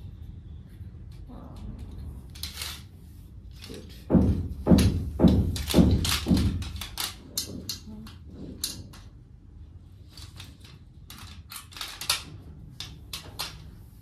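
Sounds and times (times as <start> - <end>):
metal frame clicking and knocking: 3.6 - 9.3.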